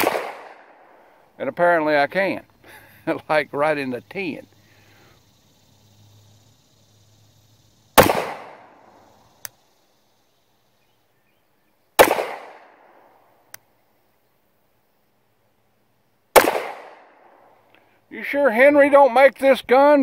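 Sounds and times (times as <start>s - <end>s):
pistol shots with echo: 0.0s - 1.0s, 8.0s - 8.8s, 12.0s - 13.0s, 16.4s - 17.3s
faint click: 9.4s - 9.6s, 13.5s - 13.7s.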